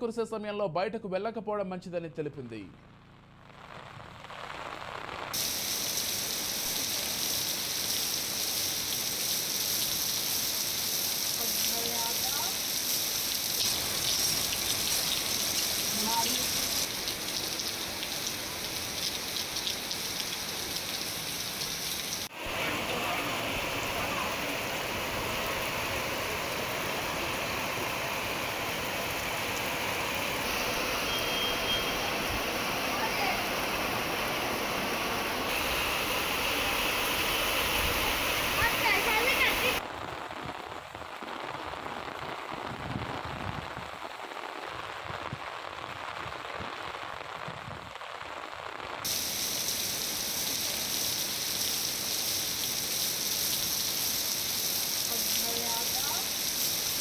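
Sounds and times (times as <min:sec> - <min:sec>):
heavy rain pouring: 0:03.9 - 0:57.0.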